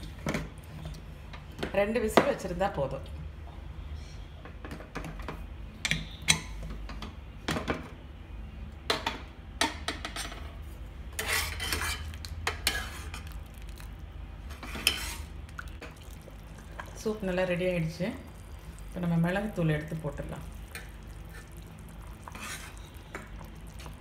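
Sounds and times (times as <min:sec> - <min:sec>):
metal ladle scraping pot: 0:11.1 - 0:13.4, 0:14.5 - 0:15.4, 0:22.2 - 0:23.2.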